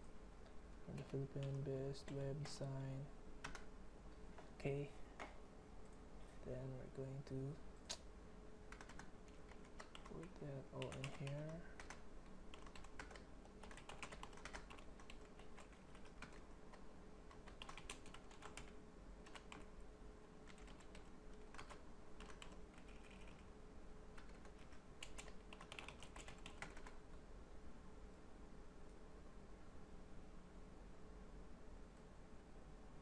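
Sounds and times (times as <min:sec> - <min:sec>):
keyboard typing clicks: 0:03.4 - 0:03.7, 0:08.7 - 0:16.5, 0:17.3 - 0:19.7, 0:24.2 - 0:27.0.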